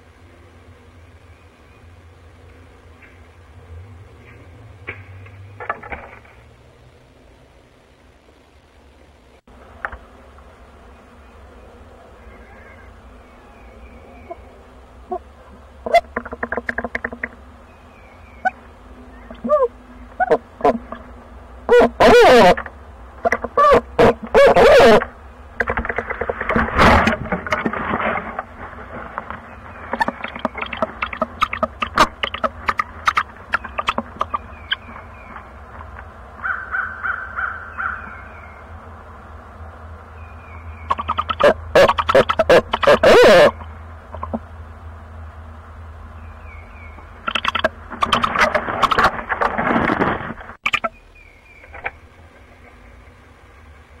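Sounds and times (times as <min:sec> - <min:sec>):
low steady hiss: 0:00.0 - 0:54.0
short high owl calls: 0:12.2 - 0:14.5, 0:19.2 - 0:20.8, 0:23.2 - 0:25.1, 0:36.4 - 0:38.4, 0:40.8 - 0:44.4
owl wing flutter: 0:15.8 - 0:17.4, 0:25.6 - 0:37.5, 0:47.2 - 0:50.9
clicks and scratches on nest: 0:15.9 - 0:17.5, 0:25.6 - 0:36.1, 0:47.3 - 0:50.8.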